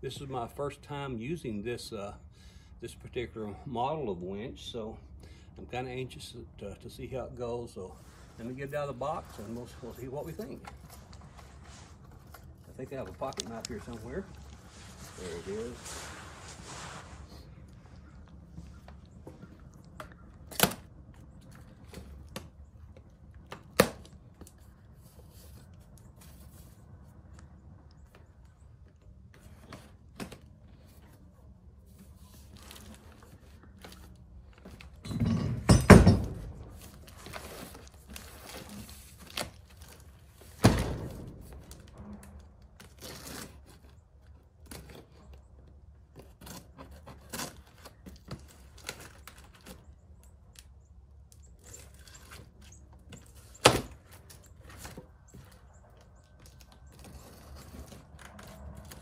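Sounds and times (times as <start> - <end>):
knocks and scrapes: 9.0 - 20.1
knife cutting cardboard box: 46.2 - 48.0.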